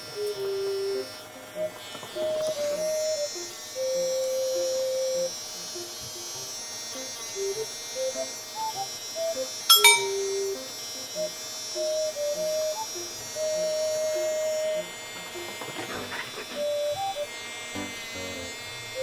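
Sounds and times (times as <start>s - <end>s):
pet clipper whining: 0.0s - 19.0s
short chime: 9.7s - 10.4s.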